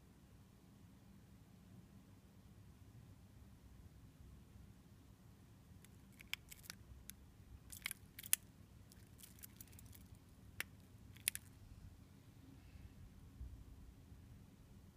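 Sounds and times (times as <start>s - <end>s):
wristwatch clicking: 5.9s - 6.8s, 7.7s - 11.5s.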